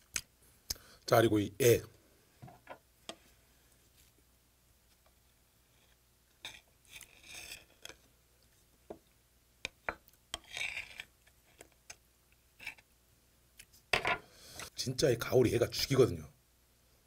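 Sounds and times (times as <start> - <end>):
knife scraping: 6.4 - 8.0, 10.3 - 11.1.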